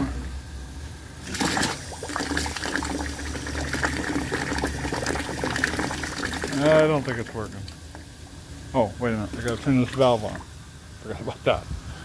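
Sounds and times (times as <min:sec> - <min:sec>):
steam and water hissing and gurgling: 0:01.2 - 0:07.4.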